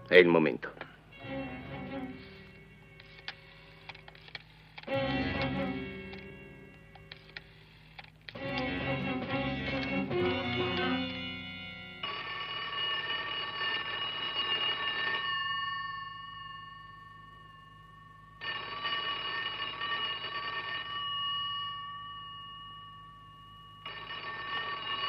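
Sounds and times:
telephone bell ringing: 0:01.1 - 0:25.0.

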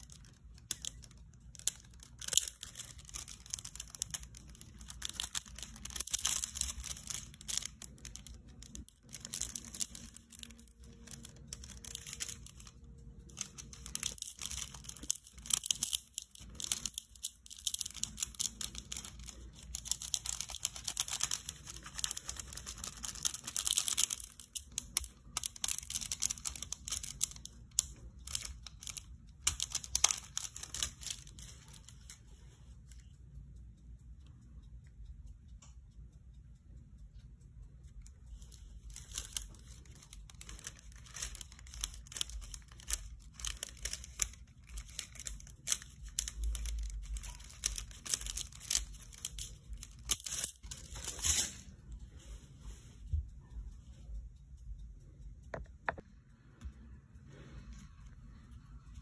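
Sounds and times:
foil crinkling and crackling: 0:00.0 - 0:32.2, 0:38.9 - 0:51.7.

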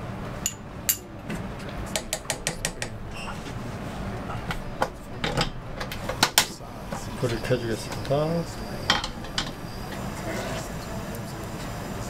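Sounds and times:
spoon scraping frying pan: 0:08.9 - 0:10.8.

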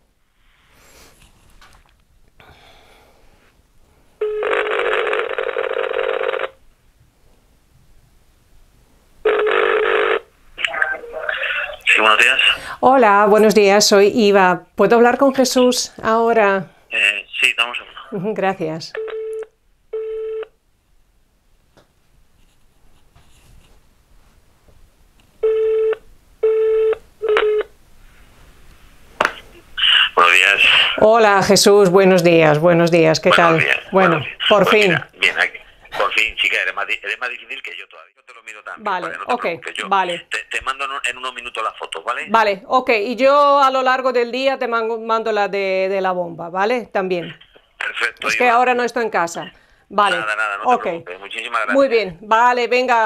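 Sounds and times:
phone ringback tone: 0:04.2 - 0:06.6, 0:09.3 - 0:10.2, 0:19.0 - 0:20.5, 0:25.4 - 0:27.7.

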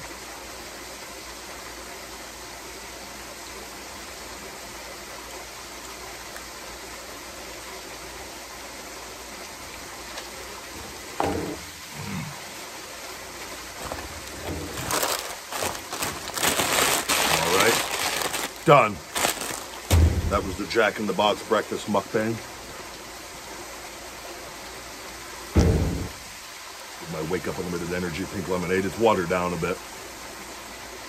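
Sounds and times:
water rushing from waterfall: 0:00.0 - 0:31.0
brief vocal sound: 0:11.9 - 0:12.5
paper wrapper crinkling: 0:13.8 - 0:20.5.

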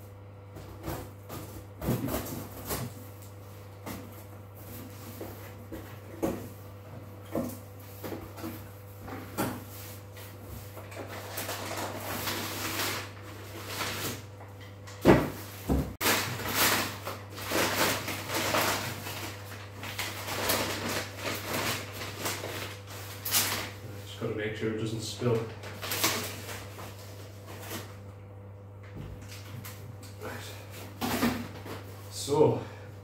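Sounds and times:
paper packaging rustling: 0:10.7 - 0:14.3, 0:15.4 - 0:23.8, 0:25.3 - 0:28.0
cardboard scraping and tearing: 0:16.0 - 0:23.8, 0:25.7 - 0:27.9.

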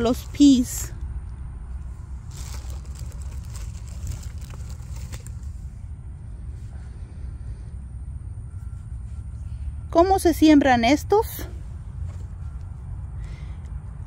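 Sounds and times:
steady low rumble: 0:00.0 - 0:14.0
paper packets rustling: 0:02.2 - 0:05.7.

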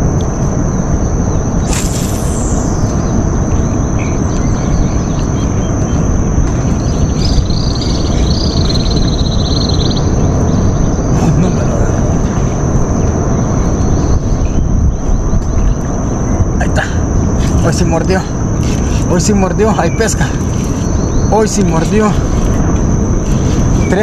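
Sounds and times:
high-pitched whine: 0:00.0 - 0:24.0
low rumble: 0:00.0 - 0:24.0
bird trilling: 0:01.6 - 0:11.4.

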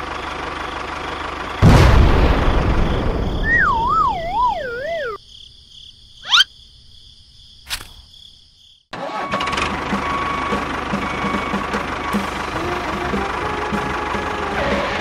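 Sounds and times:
tractor engine: 0:00.0 - 0:04.9, 0:09.0 - 0:15.0
cartoon crash: 0:01.6 - 0:05.2
wobbling downward whistle: 0:03.4 - 0:05.2.

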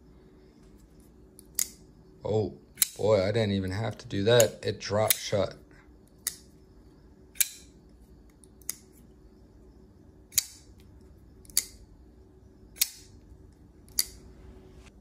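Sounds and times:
folding knife blade clicking: 0:01.4 - 0:01.8, 0:02.8 - 0:03.0, 0:07.4 - 0:07.7, 0:10.3 - 0:10.7, 0:11.4 - 0:11.8, 0:12.8 - 0:13.1, 0:13.9 - 0:14.2.

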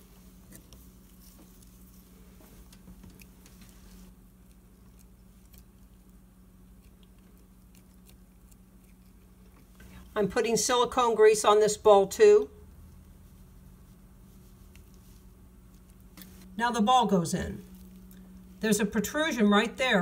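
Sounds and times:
steady low hum: 0:00.0 - 0:20.0
small clicks and rubbing: 0:00.4 - 0:10.0.

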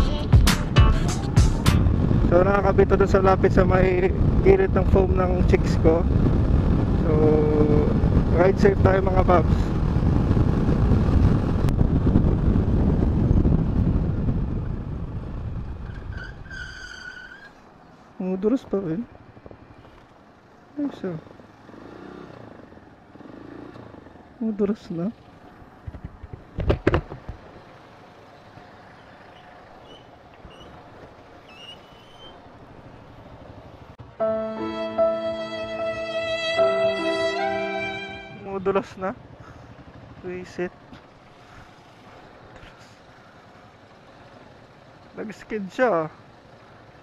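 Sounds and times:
motorcycle and car engines passing: 0:01.1 - 0:16.4, 0:18.8 - 0:34.2, 0:38.0 - 0:47.0
wind rumbling on microphone: 0:01.7 - 0:16.8.

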